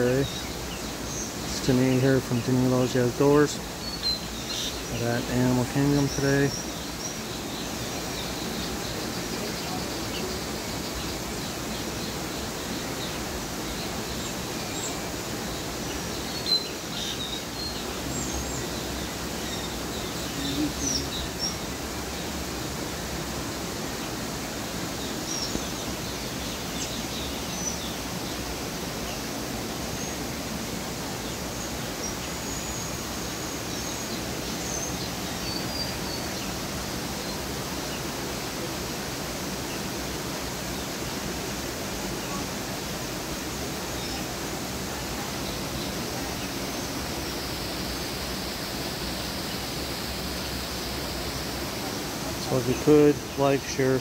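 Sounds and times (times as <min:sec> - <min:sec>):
faint bird chirps: 0:00.0 - 0:23.0, 0:23.6 - 0:30.3, 0:31.1 - 0:38.8
outdoor background noise: 0:00.0 - 0:54.0.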